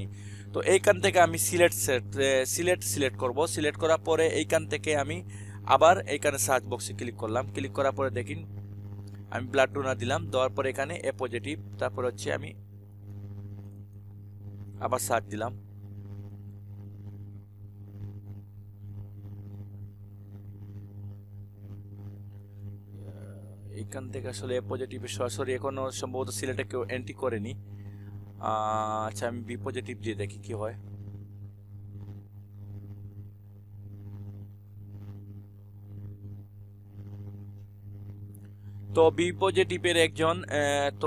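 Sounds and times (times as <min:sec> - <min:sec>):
low electrical hum: 0:00.0 - 0:41.0.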